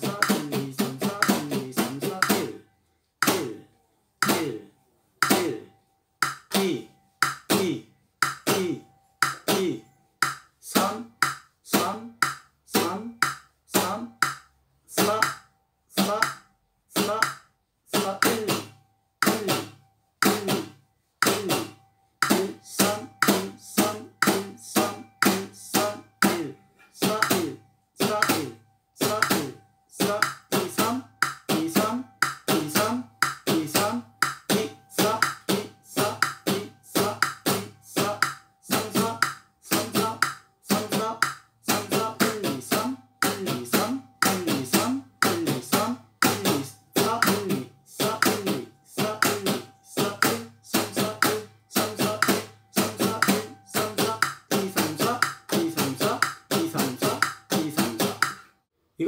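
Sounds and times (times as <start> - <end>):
acoustic guitar strumming: 46.2 - 58.4.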